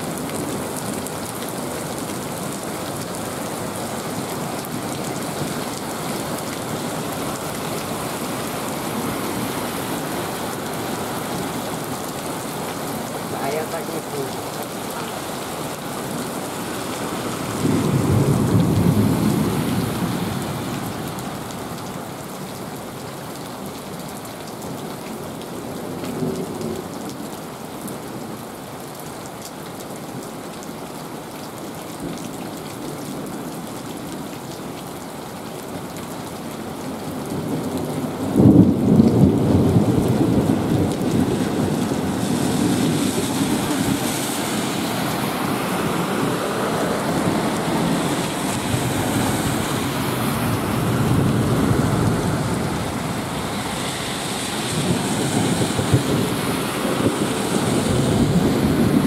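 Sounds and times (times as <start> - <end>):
heavy rain pouring: 0.0 - 59.0
car tyres hissing on wet road: 0.1 - 22.6, 39.7 - 59.0
thunder rumbling: 17.2 - 20.7, 45.3 - 59.0.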